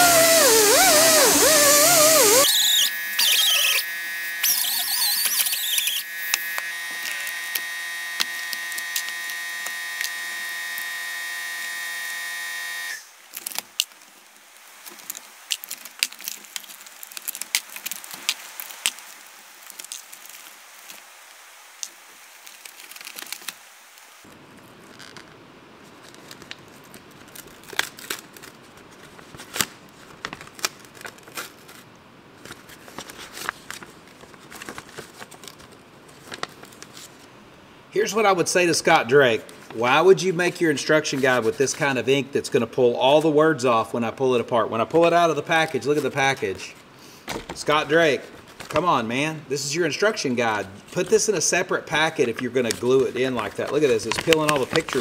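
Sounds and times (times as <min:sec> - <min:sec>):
plastic packaging crinkling: 0:00.0 - 0:07.6, 0:13.2 - 0:21.2, 0:21.8 - 0:25.3, 0:25.9 - 0:37.3, 0:51.9 - 0:55.0
grinder whining: 0:00.0 - 0:13.0.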